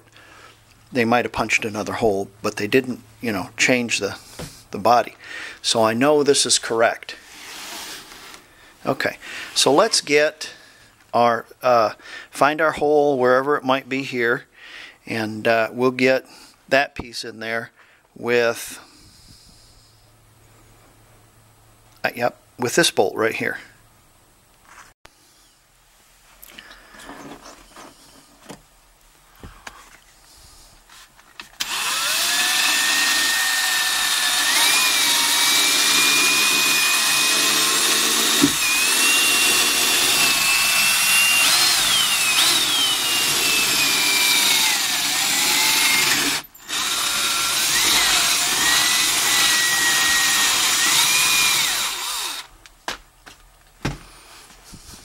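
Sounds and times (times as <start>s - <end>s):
cordless drill motor whining: 31.6s - 52.5s.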